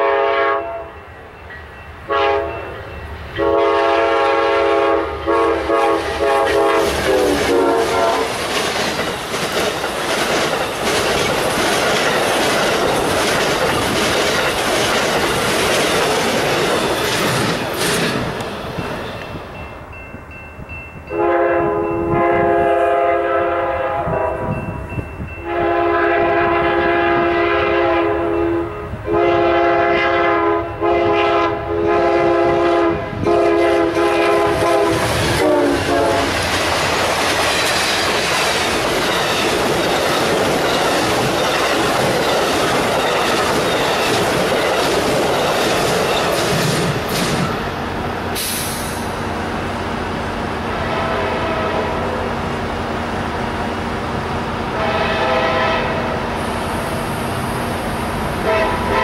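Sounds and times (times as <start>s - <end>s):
train horn blasts: 0.0s - 1.0s, 2.1s - 8.4s, 21.1s - 24.7s, 25.4s - 36.4s, 50.7s - 52.2s, 54.7s - 56.2s, 58.4s - 59.0s
train wheels clattering on rails: 5.2s - 19.8s, 33.2s - 49.3s.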